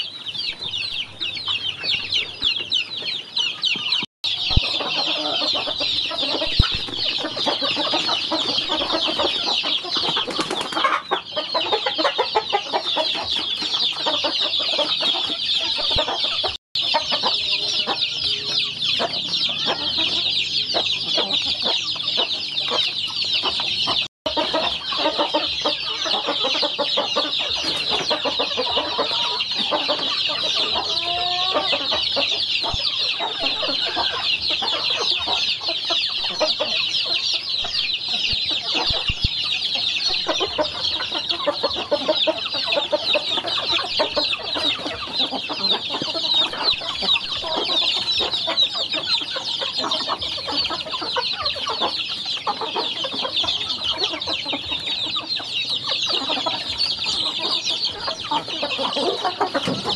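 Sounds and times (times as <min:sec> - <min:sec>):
chicks peeping: 0:00.0 - 0:59.9
clucking calls: 0:00.0 - 0:59.9.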